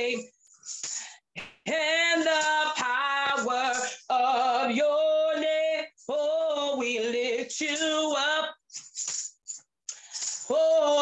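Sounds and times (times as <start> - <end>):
woman singing: 0.0 - 0.3, 1.6 - 8.6, 10.4 - 11.0.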